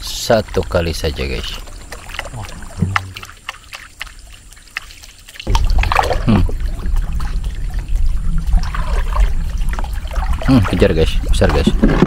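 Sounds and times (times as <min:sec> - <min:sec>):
water lapping around boat: 0:00.0 - 0:12.0
low uneven rumble: 0:05.5 - 0:12.0.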